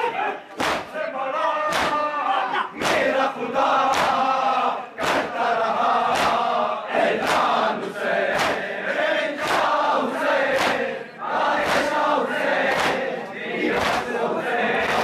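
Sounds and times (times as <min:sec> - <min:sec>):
men chanting in unison: 0:00.0 - 0:15.0
hands striking chests: 0:00.6 - 0:00.9, 0:01.7 - 0:02.0.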